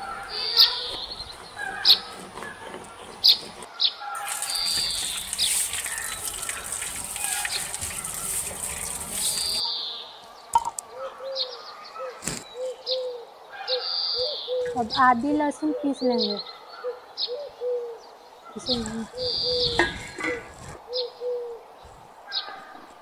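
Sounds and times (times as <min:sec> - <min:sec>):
birds chirping: 0:00.0 - 0:23.0
tap water pouring: 0:04.2 - 0:09.6
dove cooing: 0:10.9 - 0:16.1, 0:16.8 - 0:22.0.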